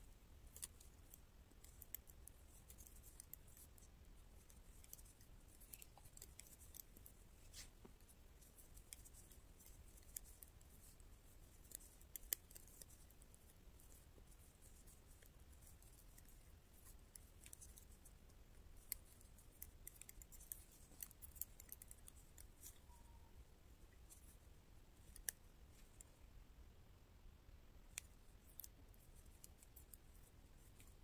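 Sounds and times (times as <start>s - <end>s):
knitting needles clicking: 0.5s - 23.3s, 25.0s - 26.1s, 27.9s - 31.0s.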